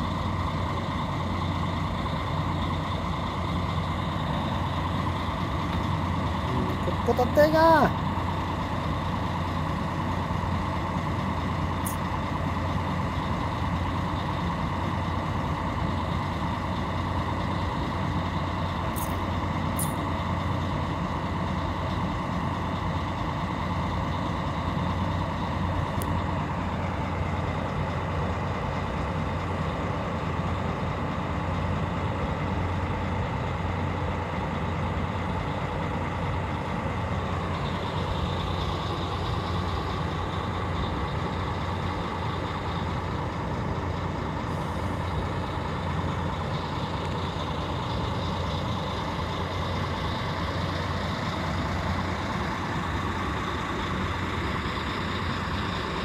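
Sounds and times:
diesel coach engines idling: 0.0 - 56.0.

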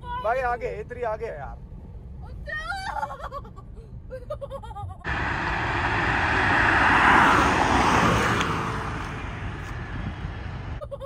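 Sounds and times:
car passing at speed: 5.1 - 10.8.

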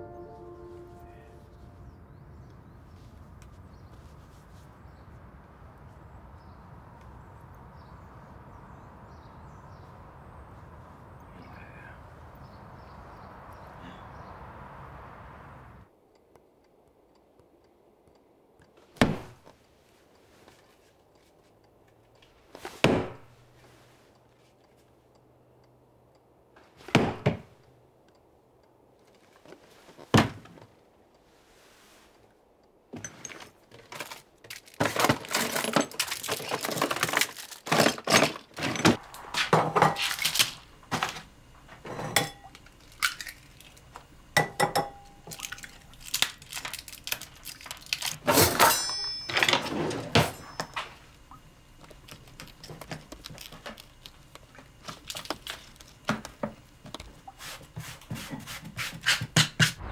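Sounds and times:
crockery and cutlery clinking: 48.3 - 51.0.

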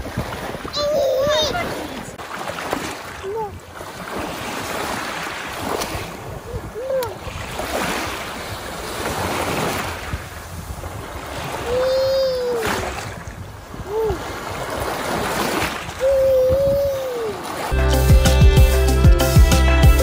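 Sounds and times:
small waves splashing on shore: 0.0 - 17.8
baby vocalizing: 0.8 - 1.8, 11.6 - 12.7, 16.0 - 17.4.

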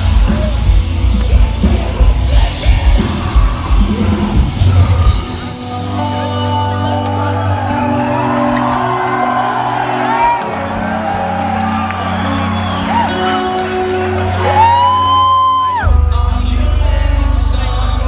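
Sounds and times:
distorted guitars: 0.0 - 9.2
heavy drums: 0.0 - 18.0
metalcore band playing live: 0.0 - 18.0.

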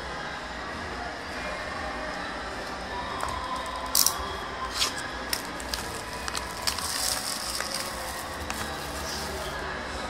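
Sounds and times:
plastic shrink wrap crackling: 4.0 - 9.6.

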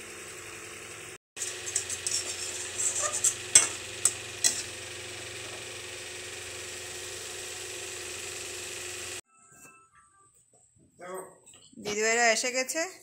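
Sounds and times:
spatula scraping a pan: 1.4 - 4.7
pan simmering hiss: 1.4 - 9.2.

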